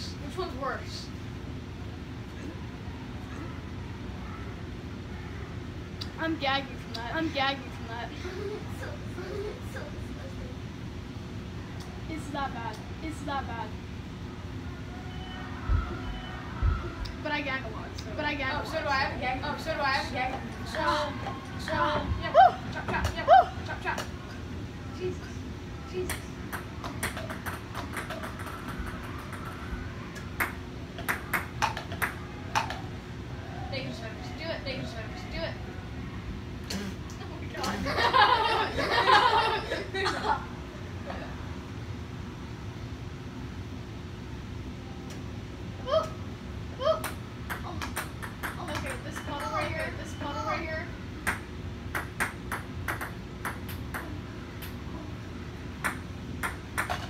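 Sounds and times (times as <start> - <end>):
table tennis ball clicking: 26.1 - 29.6
ping-pong balls bouncing: 26.1 - 32.9, 47.0 - 50.0, 51.2 - 54.8, 55.8 - 57.0.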